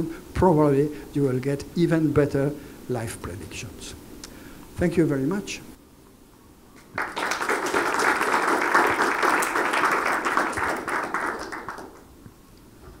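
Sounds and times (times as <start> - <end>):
audience applauding: 6.8 - 12.1.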